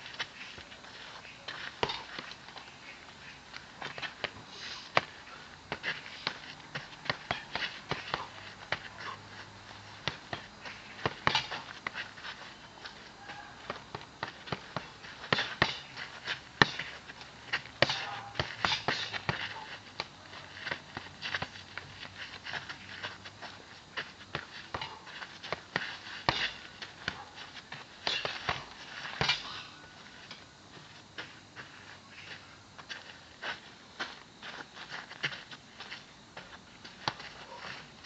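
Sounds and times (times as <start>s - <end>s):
short sharp breaths: 4.4s - 6.3s.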